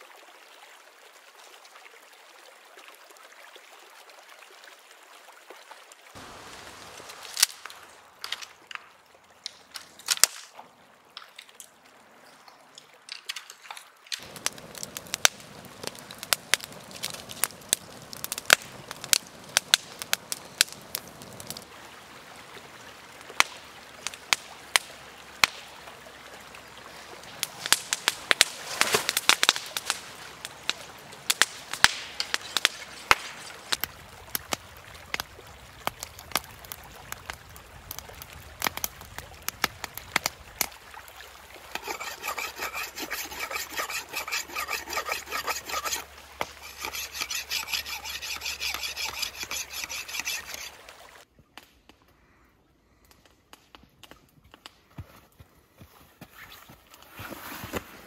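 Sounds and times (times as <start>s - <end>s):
campfire crackling and popping: 6.2s - 11.8s, 12.8s - 52.1s, 53.0s - 55.0s
rapid rhythmic rasping strokes: 41.8s - 50.7s.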